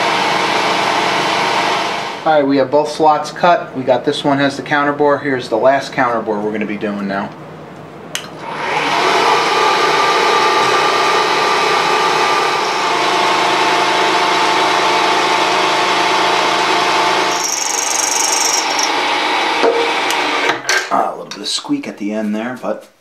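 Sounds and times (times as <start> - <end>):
milling cutter whining into metal: 8.4 - 20.6
cutter squeak: 17.3 - 19.0.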